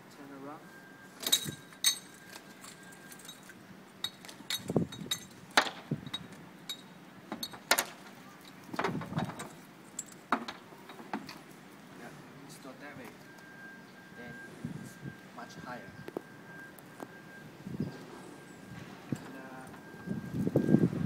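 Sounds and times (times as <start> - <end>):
bike rack clinking against car: 1.2 - 11.4.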